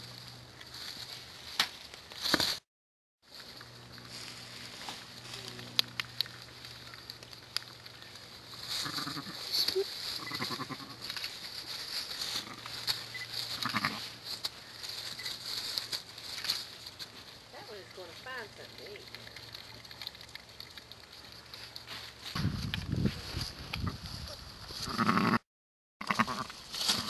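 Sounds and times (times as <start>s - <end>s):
dry leaves rustling: 0.0s - 2.6s, 3.2s - 25.0s, 26.1s - 27.0s
sheep bleating softly: 8.8s - 9.4s, 10.2s - 11.0s, 13.6s - 14.0s, 24.8s - 25.4s, 26.0s - 26.5s.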